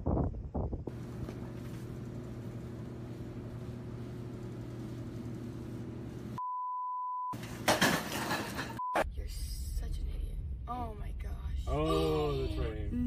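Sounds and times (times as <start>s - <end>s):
steady low hum: 0.4s - 6.4s, 7.4s - 13.0s
censor bleep: 6.4s - 7.4s.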